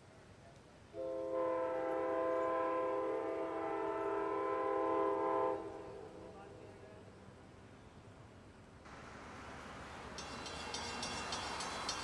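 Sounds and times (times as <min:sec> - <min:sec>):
locomotive air horn: 0:01.0 - 0:06.3.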